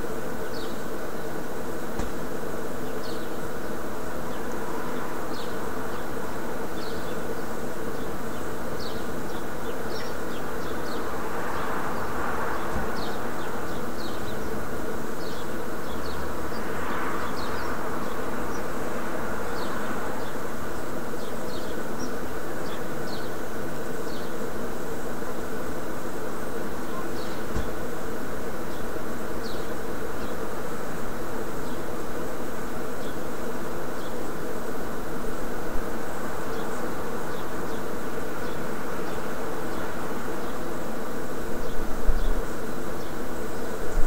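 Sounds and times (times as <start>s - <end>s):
steady buzzing hum: 0.0s - 44.0s.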